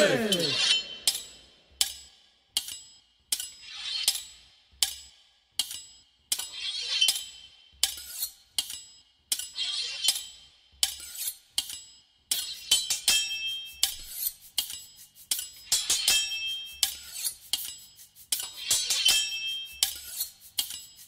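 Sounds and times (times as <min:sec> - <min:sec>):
knife clinking on sharpening steel: 0:00.0 - 0:01.5, 0:06.4 - 0:08.8, 0:09.4 - 0:21.0
blade rasping on steel: 0:03.4 - 0:04.4, 0:06.3 - 0:21.0.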